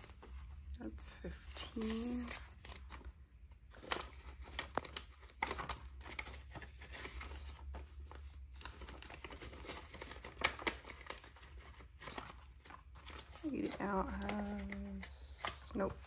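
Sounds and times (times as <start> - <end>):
banknotes rustling and flicking: 0.0 - 16.0
vinyl pocket crinkling: 3.7 - 16.0.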